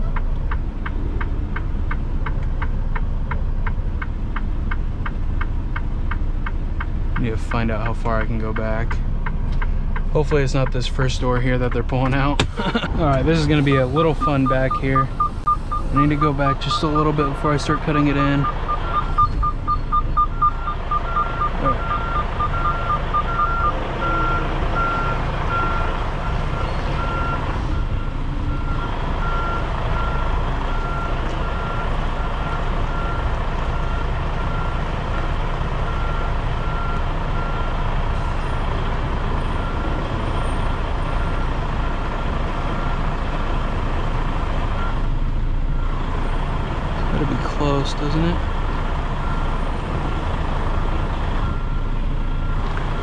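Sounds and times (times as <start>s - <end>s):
diesel truck engine running: 0.0s - 53.0s
faster beeping: 13.4s - 24.2s
backup alarm beeping: 13.4s - 33.2s.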